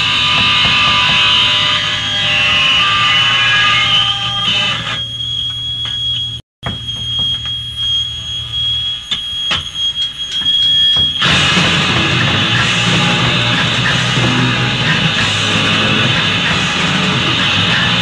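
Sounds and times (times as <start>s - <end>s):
electric guitar feedback whine: 0.0s - 18.0s
punk band playing: 11.2s - 18.0s.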